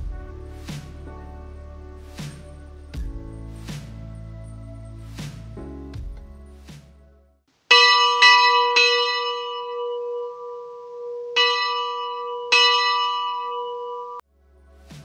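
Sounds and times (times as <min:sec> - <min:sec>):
bell ringing: 0:07.7 - 0:14.2.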